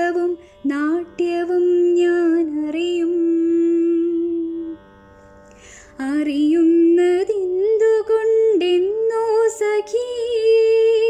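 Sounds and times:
woman singing: 0.0s - 4.8s, 5.9s - 11.0s
breath: 5.2s - 6.0s.

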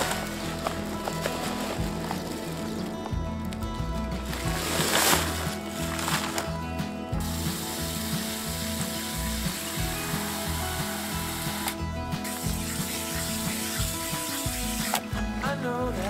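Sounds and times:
water spraying from hose nozzle: 0.0s - 2.9s, 4.2s - 15.2s.

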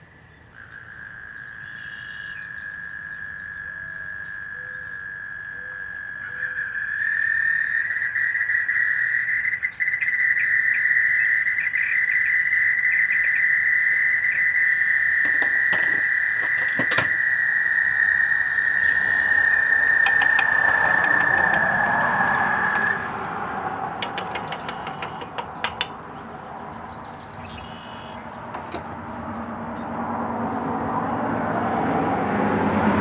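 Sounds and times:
high-pitched animal trill: 15.4s - 23.1s.

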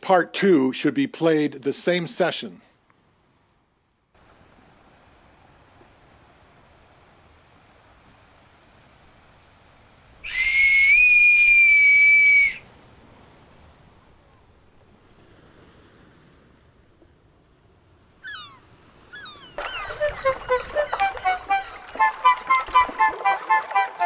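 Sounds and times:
whistle high steady tone: 10.2s - 12.6s.

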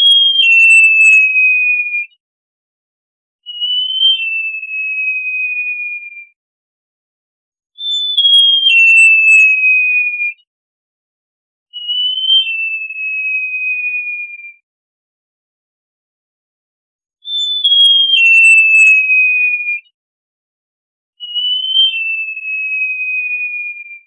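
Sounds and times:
bird singing thin whistles: 0.0s - 2.0s, 3.5s - 6.2s, 7.8s - 10.3s, 11.8s - 14.5s, 17.2s - 19.8s, 21.2s - 24.0s.

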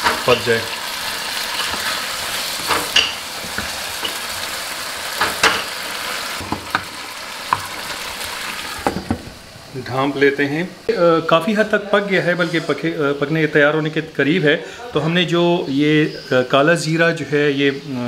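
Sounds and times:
chicken sizzling in a pan: 0.0s - 10.6s
wooden spatula scraping a pan: 1.4s - 4.5s.

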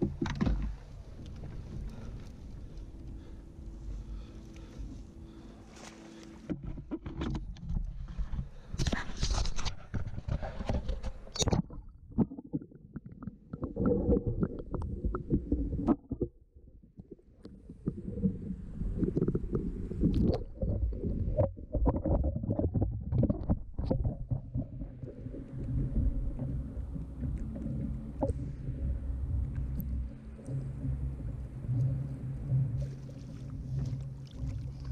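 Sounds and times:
handling knocks and clicks: 0.0s - 1.4s
muffled low rumbling: 0.0s - 8.7s, 11.9s - 34.9s
water against kayak hull: 0.0s - 34.9s.

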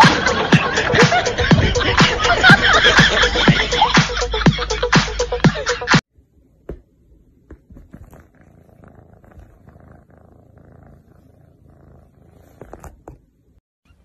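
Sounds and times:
cat purring: 7.1s - 13.6s.

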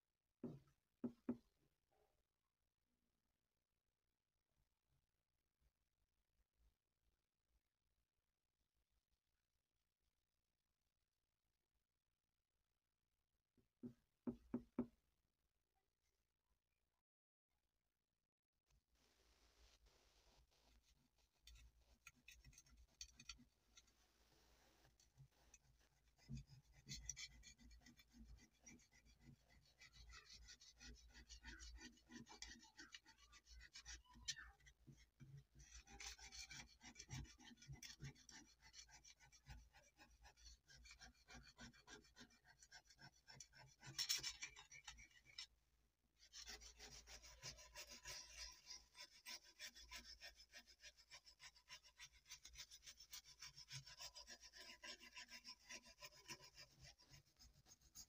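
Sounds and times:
scraper scraping rust off blade: 21.4s - 24.0s, 25.0s - 45.5s, 46.4s - 58.0s.

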